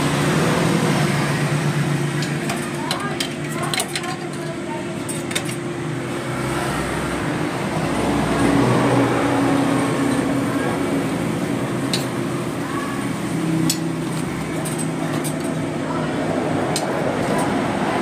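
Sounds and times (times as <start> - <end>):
vehicle engine passing: 6.0 - 15.1.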